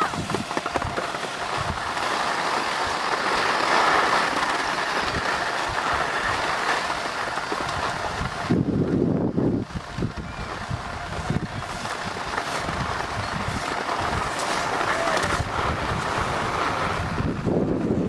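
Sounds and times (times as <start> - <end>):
wind on microphone: 0.0 - 2.1, 4.0 - 18.0
skis scraping over snow: 0.0 - 18.0.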